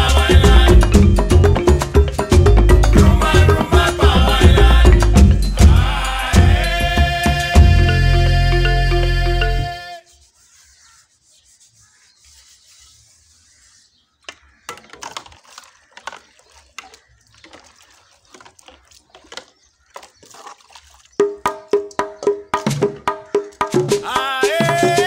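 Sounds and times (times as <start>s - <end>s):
pan being scrubbed: 10.1s - 21.5s
water sloshing: 14.1s - 24.1s.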